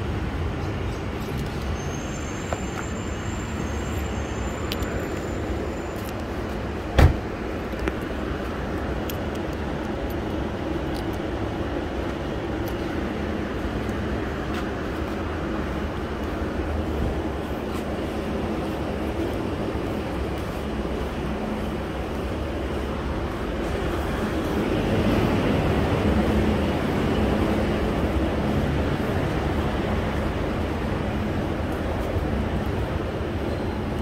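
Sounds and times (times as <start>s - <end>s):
outdoor background noise: 0.0s - 34.0s.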